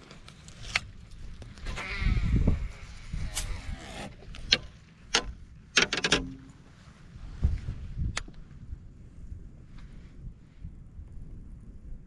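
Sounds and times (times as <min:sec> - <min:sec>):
fishing gear clicking and knocking: 0:04.1 - 0:06.6.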